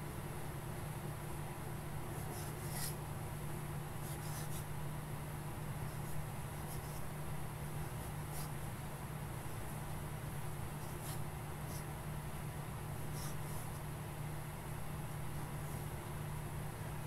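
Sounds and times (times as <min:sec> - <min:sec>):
pen nib scratching paper: 0:02.2 - 0:03.0, 0:04.0 - 0:04.7, 0:05.8 - 0:07.1, 0:07.9 - 0:08.6, 0:10.8 - 0:11.9, 0:13.0 - 0:13.8.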